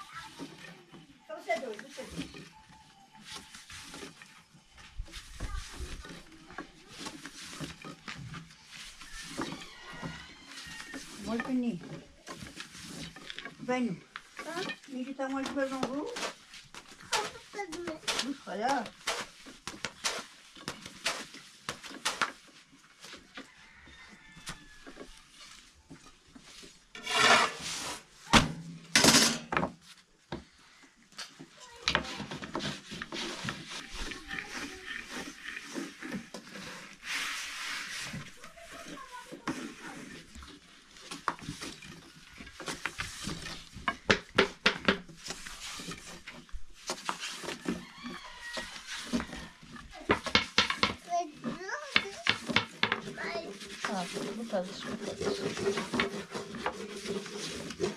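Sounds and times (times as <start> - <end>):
rolling pins rubbing dough: 0.0 - 28.1, 31.5 - 57.9
wooden knocks and clacks: 41.0 - 57.9.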